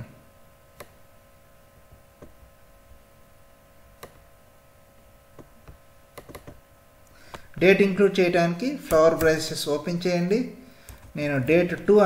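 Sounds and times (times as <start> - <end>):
faint electrical hum: 0.0 - 12.0
computer mouse clicks: 0.8 - 1.0, 4.0 - 4.2, 5.4 - 6.6.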